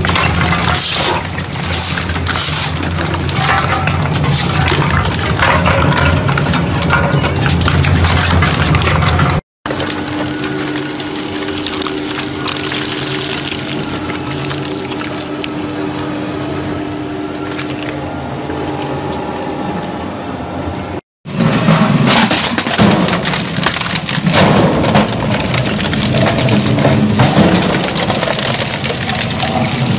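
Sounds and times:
shredder grinding spray cans: 0.0 - 20.2, 22.1 - 29.9
shredder humming: 0.0 - 21.0.

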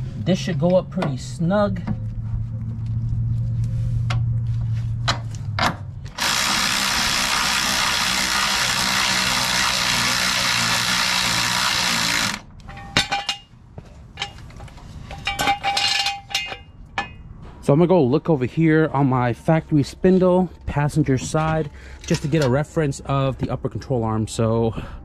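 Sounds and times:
impact wrench running: 6.1 - 12.5.

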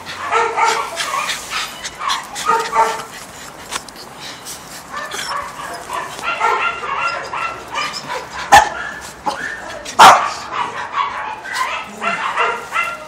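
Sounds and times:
dogs barking: 0.0 - 3.3, 4.8 - 13.0.

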